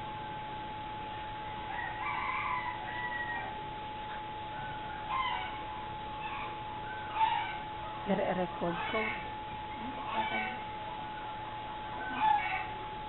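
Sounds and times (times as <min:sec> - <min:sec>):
steady high hum: 0:00.0 - 0:13.0.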